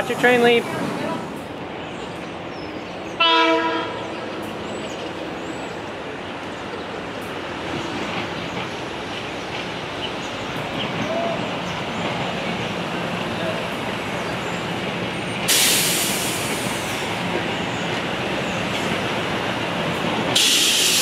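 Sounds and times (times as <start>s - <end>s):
trains at a station: 0.0s - 21.0s
train horn blast: 3.2s - 4.3s.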